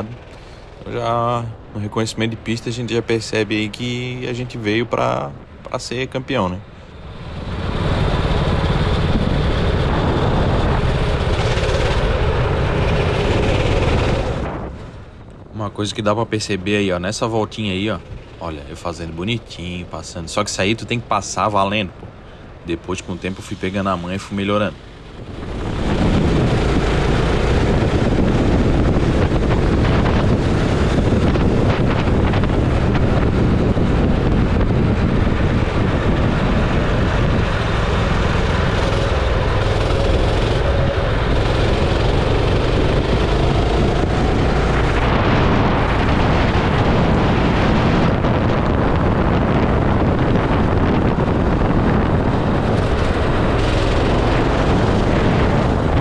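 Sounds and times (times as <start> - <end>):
wind buffeting microphone: 0.0 - 56.0
go-kart engine running: 6.8 - 15.1, 24.7 - 56.0.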